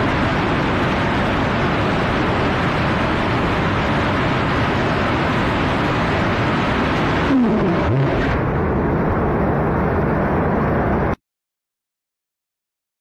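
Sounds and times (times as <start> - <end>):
rocket engine roaring: 1.3 - 11.1
vapour venting rush: 5.6 - 8.7
falling and rising tones: 7.3 - 8.4.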